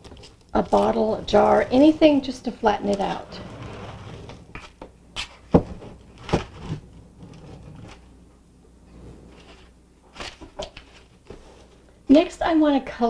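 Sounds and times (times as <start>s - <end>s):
foil crackling: 0.0s - 3.4s
rolling pin rolling over foil: 0.0s - 4.8s, 5.5s - 8.1s.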